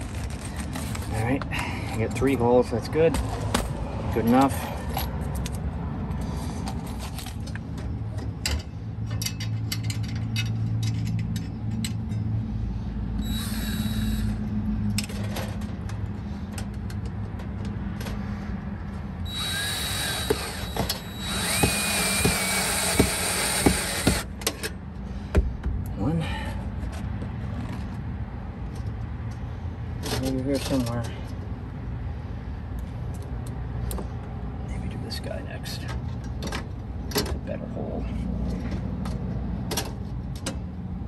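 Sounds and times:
cordless drill motor whine: 13.2 - 14.4, 19.3 - 24.3
drill bit clicking on metal: 19.3 - 24.2.

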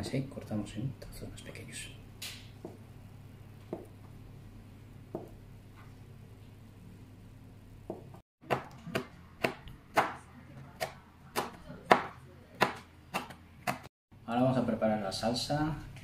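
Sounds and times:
knife chopping on plastic board: 7.9 - 10.2, 10.8 - 13.9.

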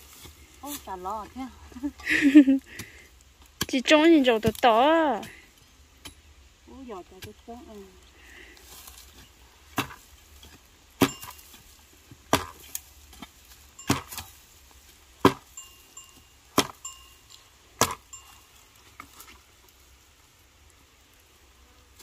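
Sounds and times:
wood being chopped: 9.7 - 14.4, 15.2 - 15.6, 16.5 - 16.9, 17.8 - 18.1.

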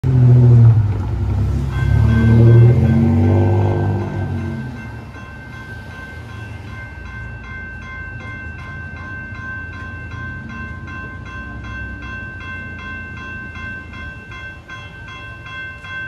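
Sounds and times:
low traffic engine rumble: 0.0 - 5.3
railroad crossing bell ringing: 0.1 - 16.0.

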